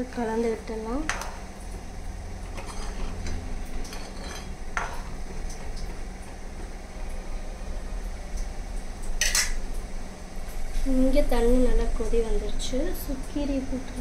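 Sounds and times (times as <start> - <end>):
spoon scraping pan: 2.4 - 5.2.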